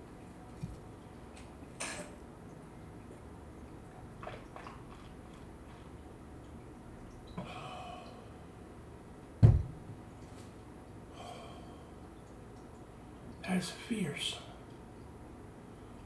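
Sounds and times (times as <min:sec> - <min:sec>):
loud low thump: 0:09.4 - 0:09.8.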